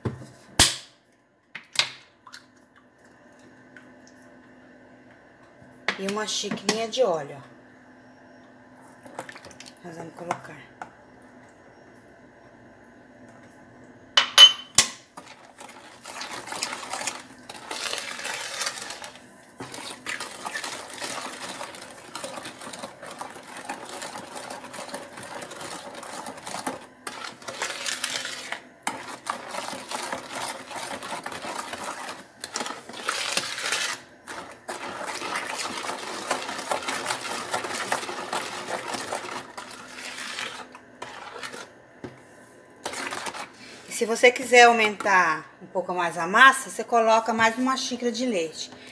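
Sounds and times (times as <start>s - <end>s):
spoon stirring in plastic bowl: 15.2s - 45.2s.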